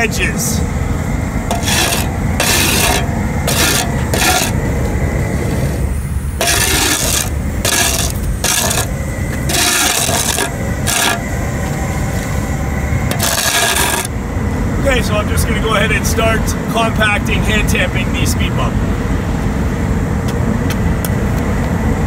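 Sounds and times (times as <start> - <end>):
steady low rumble: 0.0 - 22.0
shovel scraping pavement: 1.5 - 4.6, 6.4 - 11.4, 13.1 - 14.1.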